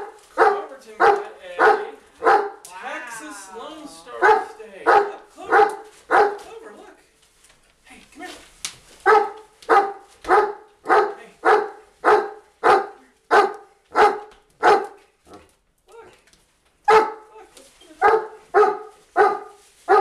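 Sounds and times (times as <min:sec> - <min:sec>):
dog barking: 0:00.0 - 0:02.6, 0:04.2 - 0:06.5, 0:09.0 - 0:15.4, 0:16.8 - 0:17.3, 0:18.0 - 0:20.0.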